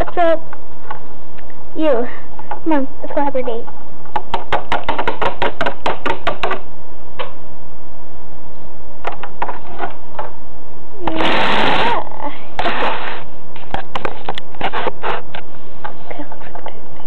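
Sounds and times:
loud noise burst: 11.0 - 13.4.

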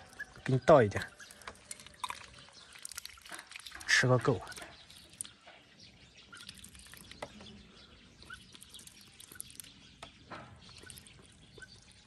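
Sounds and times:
faint bird chirps: 0.0 - 3.3, 3.9 - 12.0
duck dabbling in water: 1.1 - 5.4, 8.2 - 9.8.

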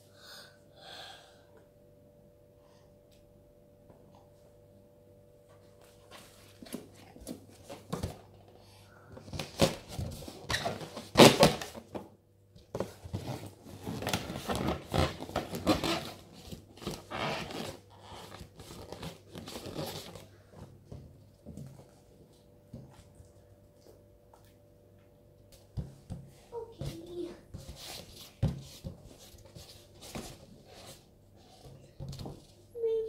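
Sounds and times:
balloons rubbing and bumping: 9.3 - 12.0, 12.8 - 20.3.

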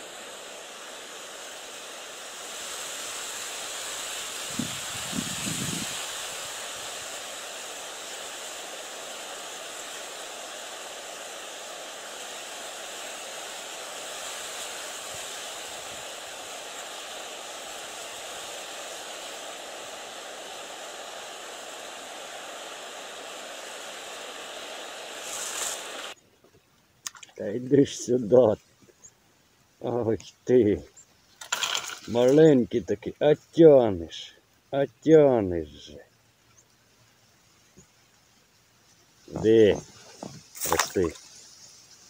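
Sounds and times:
wind over open water: 4.3 - 7.4.

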